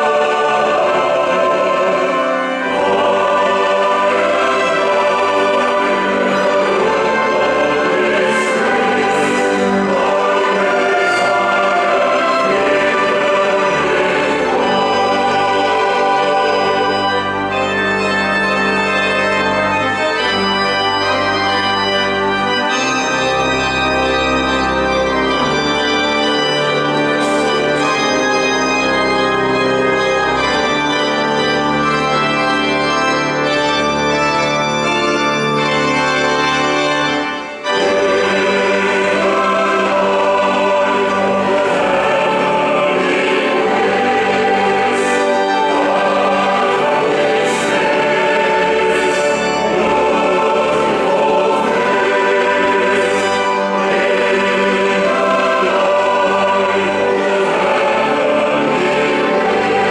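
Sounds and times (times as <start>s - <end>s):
women's choir singing: 0.0s - 17.6s, 37.7s - 59.9s
organ playing held chords: 0.0s - 59.9s.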